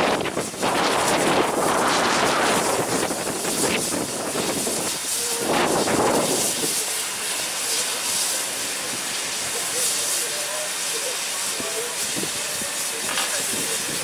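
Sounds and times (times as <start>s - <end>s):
steam locomotive hissing steam: 0.0s - 14.0s.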